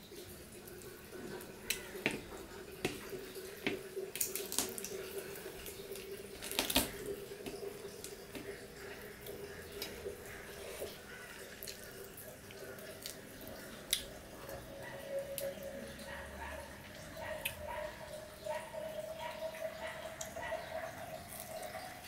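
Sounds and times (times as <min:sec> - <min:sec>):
sharp wet clicks: 0:11.6 - 0:21.9.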